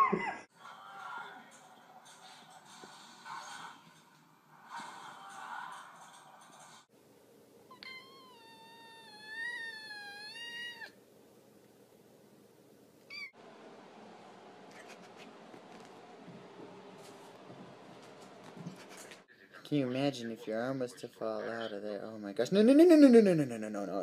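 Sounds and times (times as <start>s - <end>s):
cat meowing: 7.7s - 11.0s, 13.1s - 13.4s.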